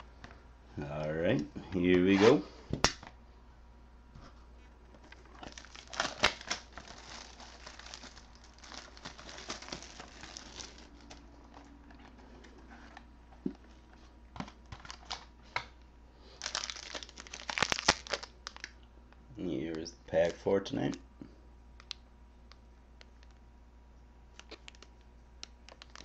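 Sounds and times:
wrapper and cardboard crinkling: 5.0 - 13.0, 16.3 - 18.8, 25.7 - 26.0.

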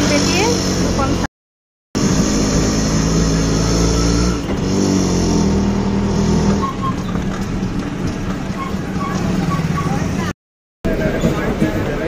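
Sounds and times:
auto rickshaw engine running: 0.0 - 1.3, 2.0 - 12.0.

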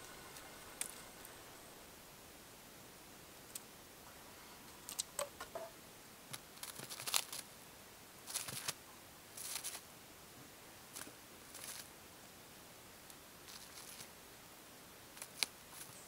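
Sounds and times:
bird pecking at plastic bag: 0.0 - 1.4.

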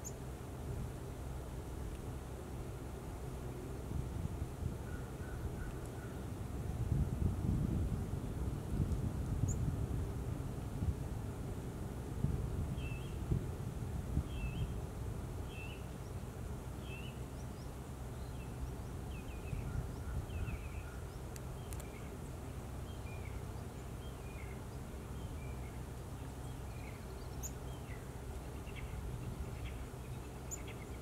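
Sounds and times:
low background rumble: 0.0 - 31.0
songbird chirping: 14.3 - 14.8, 15.4 - 16.2, 16.8 - 31.0.

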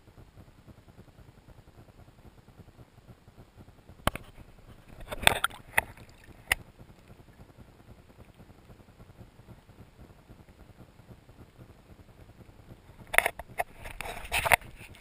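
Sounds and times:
faint steady hiss: 0.0 - 15.0
water splashing against camera: 4.0 - 7.5, 13.0 - 15.0.

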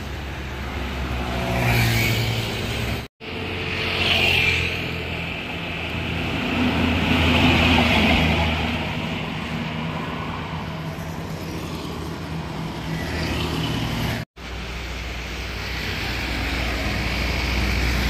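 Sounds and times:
lighter traffic: 0.0 - 18.0.

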